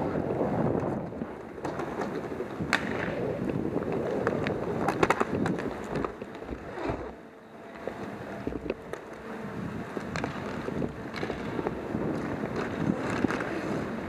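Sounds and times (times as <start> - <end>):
inline skate wheels rolling: 0.0 - 14.0
hockey sticks and puck clacking: 1.5 - 7.0, 7.7 - 9.3, 9.9 - 14.0.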